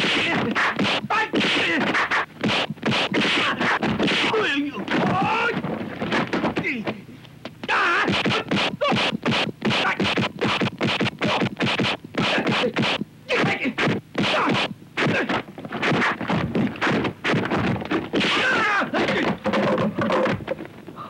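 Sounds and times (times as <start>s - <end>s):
fighters shouting: 0.0s - 2.0s, 3.1s - 5.6s, 7.6s - 10.2s, 12.2s - 16.2s, 17.3s - 19.4s.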